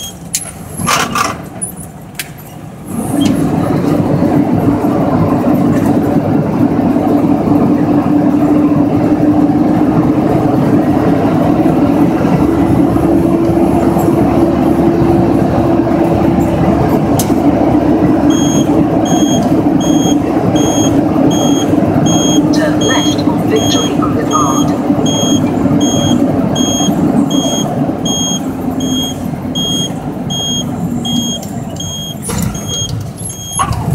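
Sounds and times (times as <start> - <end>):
truck diesel engine drone: 0.0 - 33.9
repeating electronic beep: 18.3 - 33.6.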